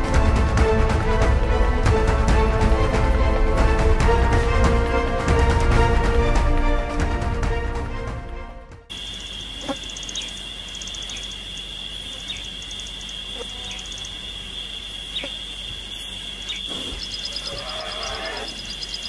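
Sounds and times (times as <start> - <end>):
bird chirps: 8.9 - 19.0
high-pitched insect drone: 8.9 - 19.0
rapid chirping pulses: 8.9 - 19.0.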